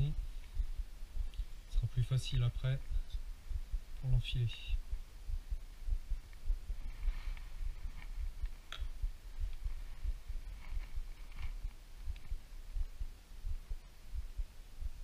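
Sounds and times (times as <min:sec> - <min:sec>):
low thumping: 0:00.0 - 0:15.0.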